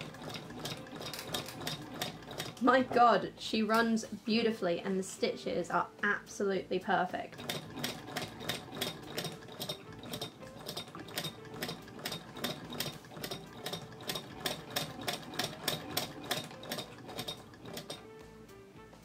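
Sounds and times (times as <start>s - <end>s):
hand-crank sewing machine stitching: 0.0s - 3.1s, 7.3s - 18.2s.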